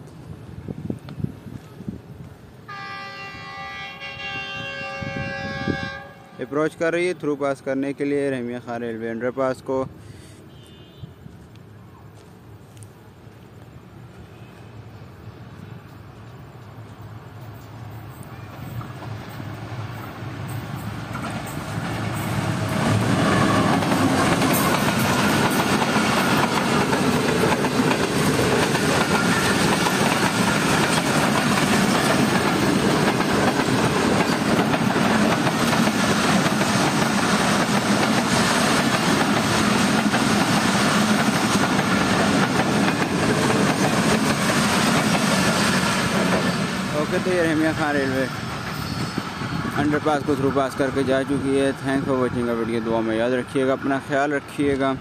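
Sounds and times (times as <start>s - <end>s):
express train passing: 0.0s - 55.0s
wheels clattering on rails: 20.4s - 50.1s.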